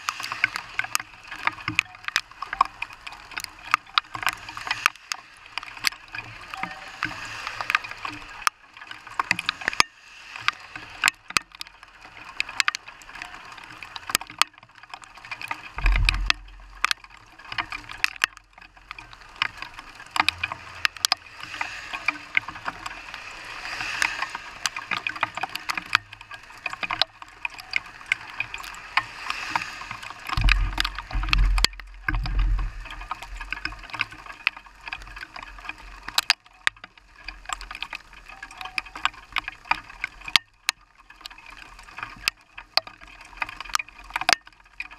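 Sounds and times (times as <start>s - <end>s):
rain and hail on a car: 0.0s - 44.9s
low rumbles: 15.8s - 17.4s, 30.4s - 33.6s.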